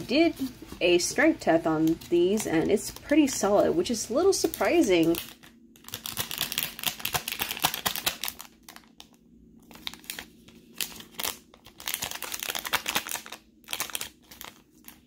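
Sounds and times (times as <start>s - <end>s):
plastic sleeve crinkling: 4.3s - 15.0s.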